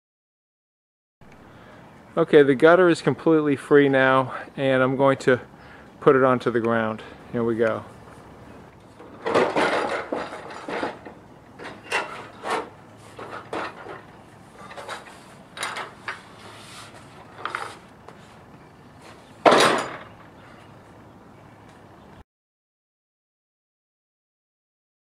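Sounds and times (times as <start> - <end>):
metal rain gutter clanking: 8.9 - 16.2, 19.4 - 20.2.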